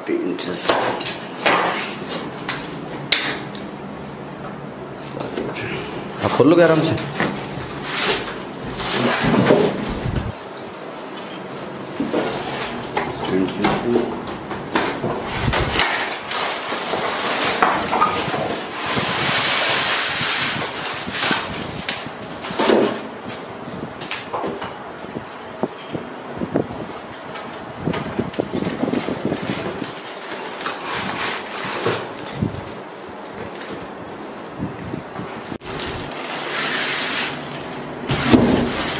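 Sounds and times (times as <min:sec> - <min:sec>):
cardboard scraping: 0:06.7 - 0:10.4, 0:14.8 - 0:23.1, 0:27.8 - 0:32.8, 0:35.6 - 0:38.9.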